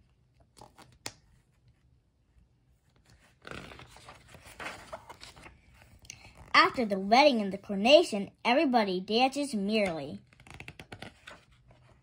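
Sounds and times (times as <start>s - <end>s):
paper pages rustling: 2.7s - 6.5s, 10.2s - 12.0s.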